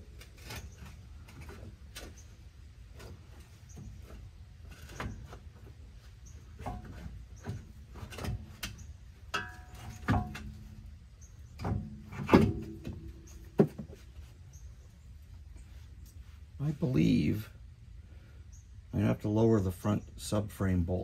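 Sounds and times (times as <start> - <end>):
metallic knocks and clunks: 6.4 - 14.1.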